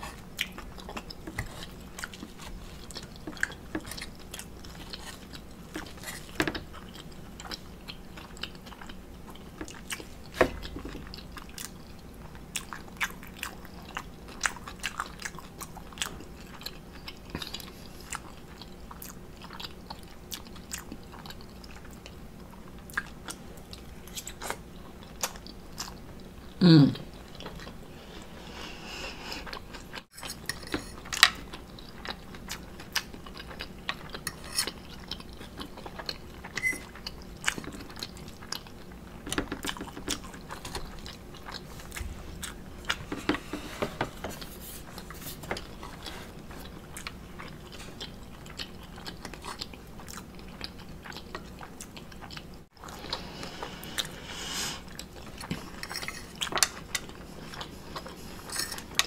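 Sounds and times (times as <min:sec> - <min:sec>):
chewing and biting food: 0:00.0 - 0:27.9, 0:29.4 - 0:43.2, 0:44.4 - 0:54.1, 0:54.8 - 0:59.0
metal fork scraping a plate: 0:34.3 - 0:34.7, 0:58.5 - 0:58.8.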